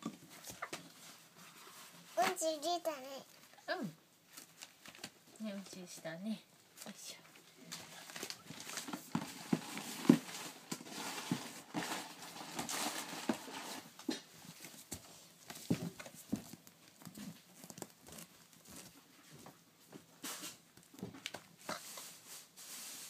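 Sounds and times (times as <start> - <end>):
paper towels crinkling: 7.7 - 14.8, 16.3 - 19.2.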